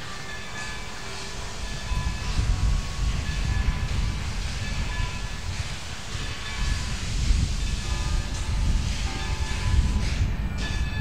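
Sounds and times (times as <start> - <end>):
steady hiss: 0.0 - 11.0
wind buffeting microphone: 0.0 - 11.0.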